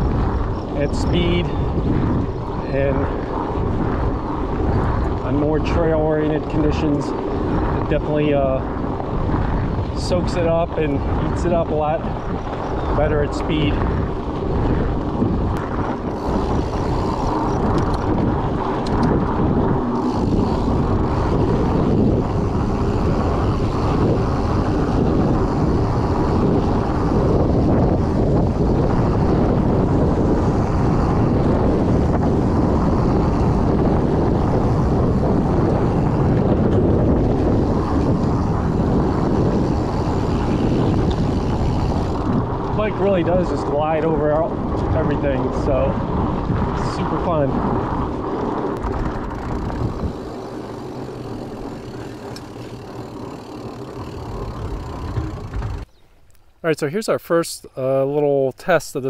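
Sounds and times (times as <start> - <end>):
bike tyres rolling over dirt: 0.0 - 56.3
wind on microphone: 0.0 - 56.6.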